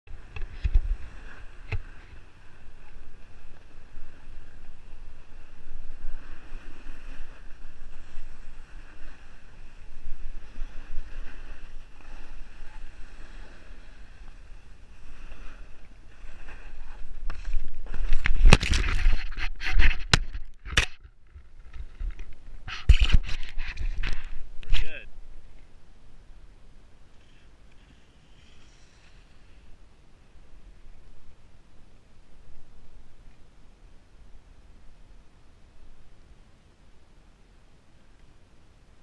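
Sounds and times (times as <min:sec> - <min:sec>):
wind rumbling on microphone: 0:00.1 - 0:39.0
ski edges scraping snow: 0:00.2 - 0:20.2, 0:27.1 - 0:29.8.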